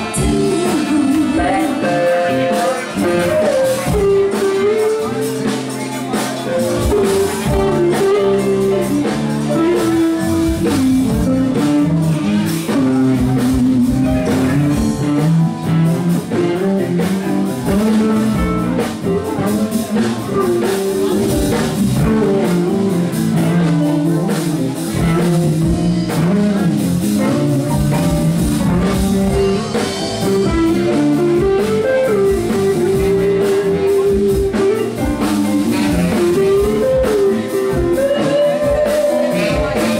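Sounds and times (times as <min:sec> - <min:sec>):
electric guitar lead: 0:00.0 - 0:39.9
funky blues band playing: 0:00.0 - 0:39.9.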